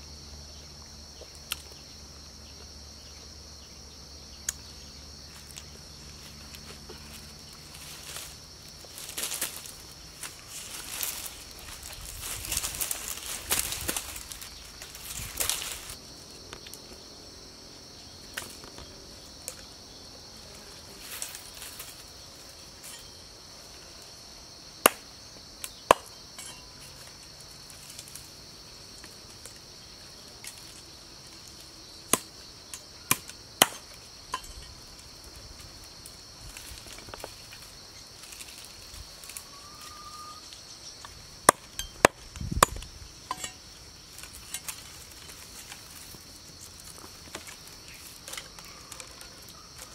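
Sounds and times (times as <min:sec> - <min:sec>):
insects buzzing: 0:00.0 - 0:49.9
vine strands rustling: 0:05.3 - 0:16.9, 0:34.0 - 0:41.4, 0:43.1 - 0:49.9.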